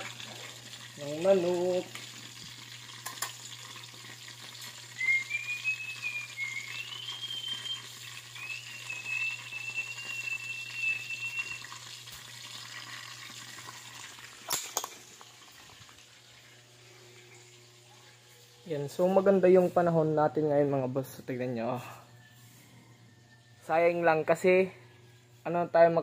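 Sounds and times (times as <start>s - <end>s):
oil sizzling in a wok: 0.0s - 17.8s
thin high whistle: 5.0s - 11.7s.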